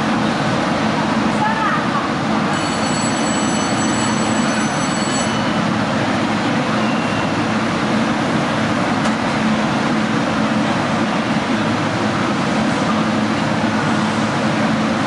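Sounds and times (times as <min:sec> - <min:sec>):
subway train rumble and hum: 0:00.0 - 0:15.0.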